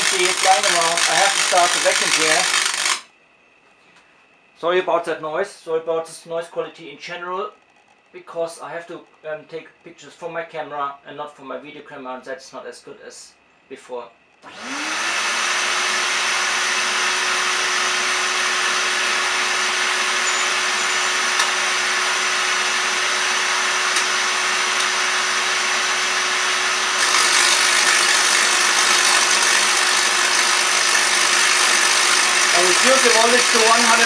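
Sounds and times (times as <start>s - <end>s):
vacuum cleaner running: 0.0s - 3.0s, 14.4s - 34.0s.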